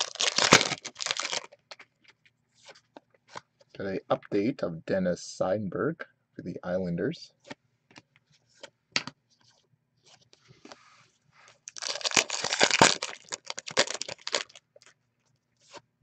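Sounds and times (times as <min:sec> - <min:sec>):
plastic wrapper crinkling: 0:00.0 - 0:03.4, 0:11.6 - 0:15.0.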